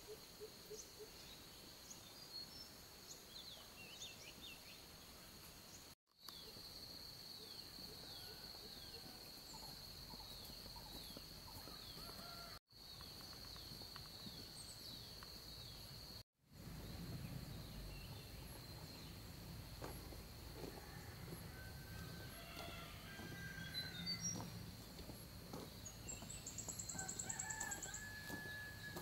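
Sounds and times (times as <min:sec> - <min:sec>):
bird chirping: 0:07.3 - 0:19.3, 0:22.2 - 0:29.0.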